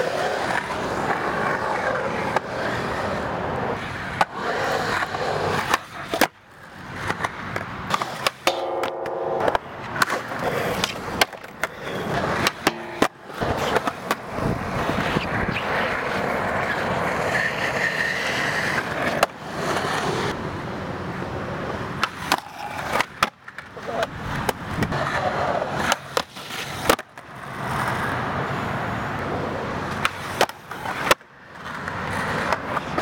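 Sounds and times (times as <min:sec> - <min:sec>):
skateboard trucks grinding on metal: 0:00.0 - 0:20.4, 0:22.0 - 0:23.2
skateboard wheels rolling on concrete: 0:00.0 - 0:33.0
skateboard clacks popping and landing: 0:04.1 - 0:17.0, 0:22.0 - 0:28.0, 0:29.9 - 0:33.0.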